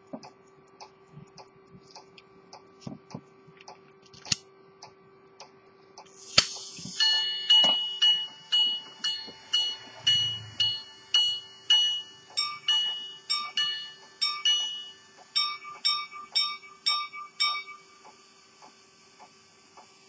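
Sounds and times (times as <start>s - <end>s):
watch gongs ringing strikes: 7.0s - 17.8s.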